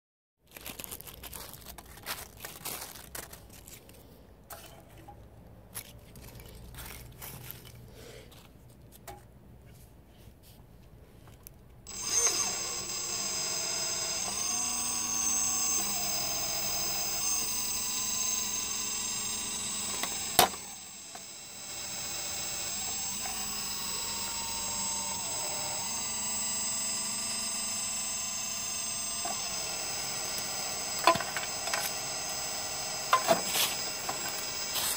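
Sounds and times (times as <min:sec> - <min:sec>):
hydraulic pump whining: 0:11.8 - 0:34.9.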